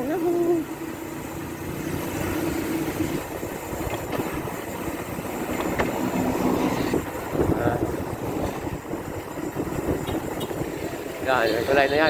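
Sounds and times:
bicycle road rumble: 0.0 - 12.0
vehicle engine humming: 0.0 - 12.0
wind on microphone: 3.0 - 11.4.

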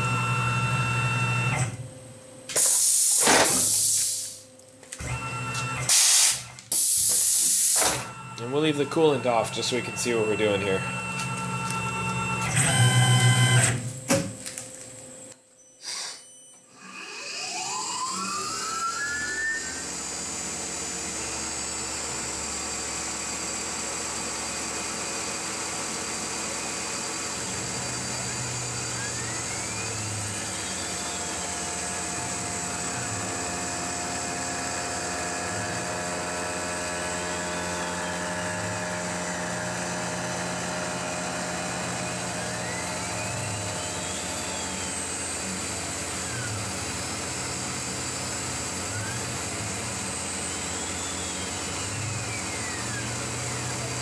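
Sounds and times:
spindle whine: 0.0 - 7.1, 7.7 - 21.7, 26.8 - 54.0
loud machine noise: 0.0 - 14.6, 16.7 - 54.0
end mill cutting metal: 27.2 - 54.0.

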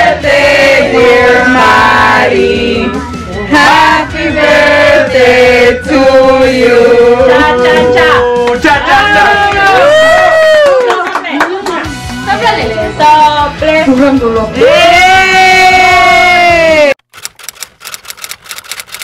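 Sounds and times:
people singing a celebration song: 0.0 - 9.2.

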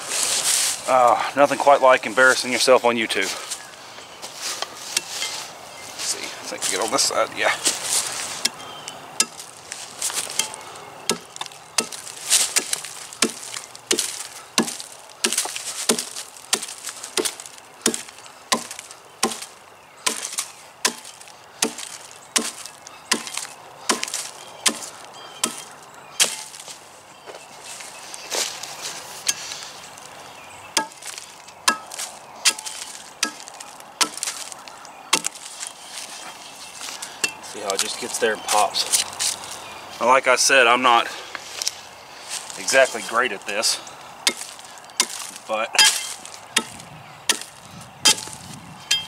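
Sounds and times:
axe chopping into log: 9.2 - 9.5, 10.2 - 26.6, 30.8 - 35.5, 44.3 - 49.0.

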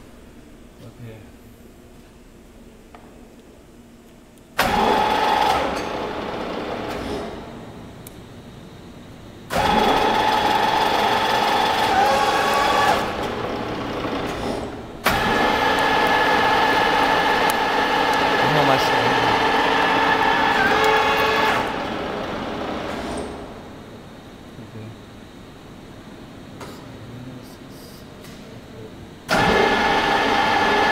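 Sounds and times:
milling machine whining: 4.6 - 24.3, 29.3 - 30.9.

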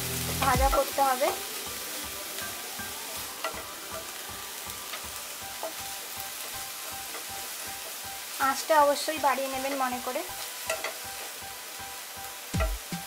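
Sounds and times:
onion sizzling in hot oil: 0.0 - 13.0.

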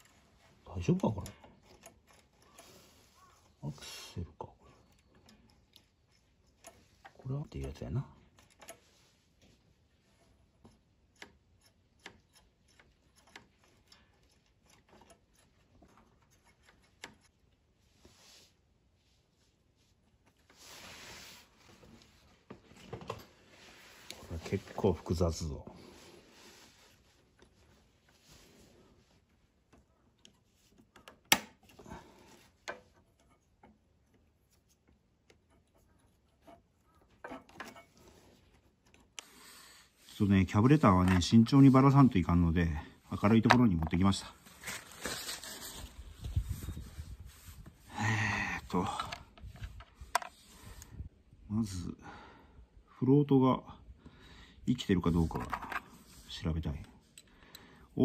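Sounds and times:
small metal clicks and knocks: 0.0 - 2.7, 4.8 - 8.8, 10.2 - 17.5, 29.6 - 31.8, 32.5 - 39.3
soft rustle: 8.3 - 10.9, 12.6 - 30.9, 31.9 - 47.9.

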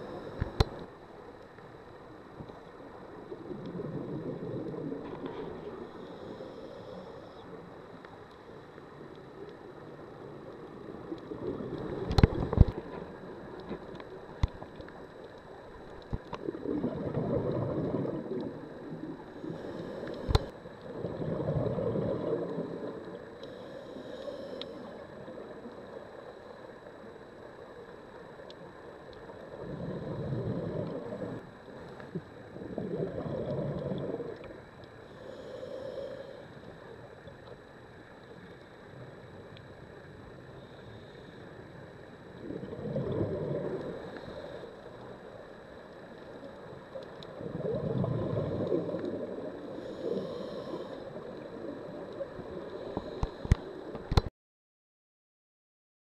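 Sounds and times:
exhaled bubbles underwater: 2.6 - 6.5, 9.3 - 23.4, 28.9 - 34.8, 42.1 - 54.3
regulator inhalation hiss: 19.4 - 20.5, 23.4 - 25.0, 35.1 - 36.6, 49.7 - 51.3.

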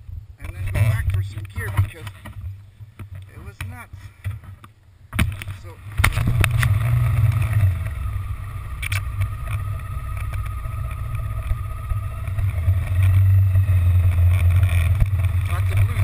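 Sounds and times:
motorcycle engine droning: 5.1 - 16.0.

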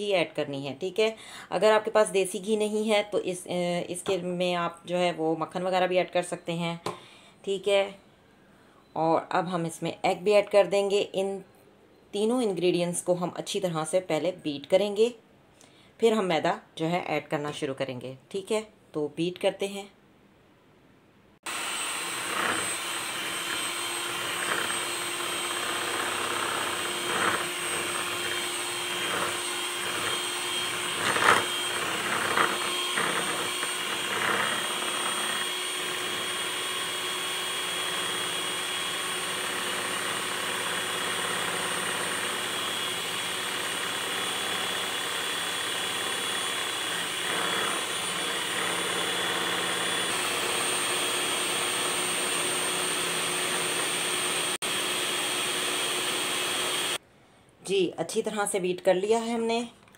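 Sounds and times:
electric hand mixer running: 21.5 - 57.0.

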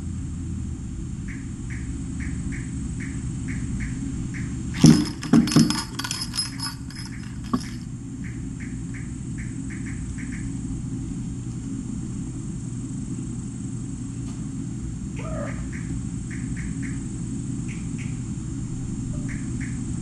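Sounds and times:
clattering knocks: 4.8 - 7.8.

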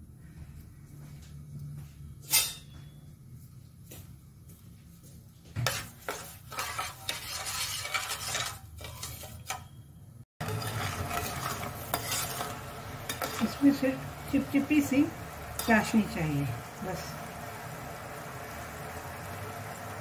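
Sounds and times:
metal spoon scraping a pan: 2.2 - 2.8, 5.6 - 16.1
syrup bubbling sizzle: 10.4 - 20.0.

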